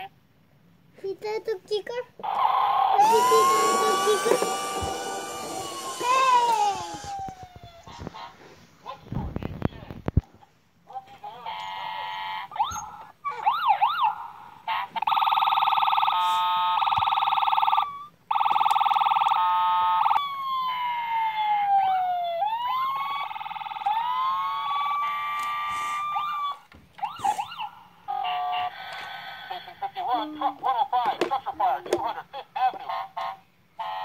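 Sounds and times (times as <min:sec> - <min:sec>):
toy electronic siren: 0:02.2 - 0:07.5, 0:12.6 - 0:14.2, 0:15.0 - 0:27.7.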